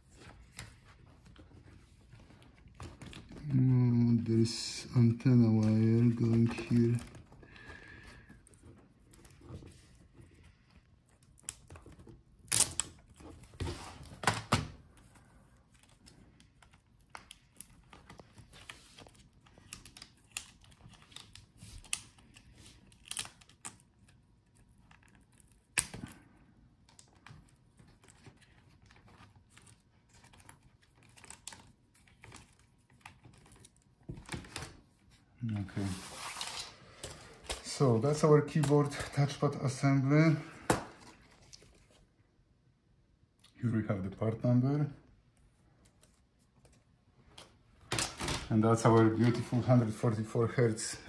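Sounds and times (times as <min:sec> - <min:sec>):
plastic laptop parts clicking: 0:15.8 - 0:26.2.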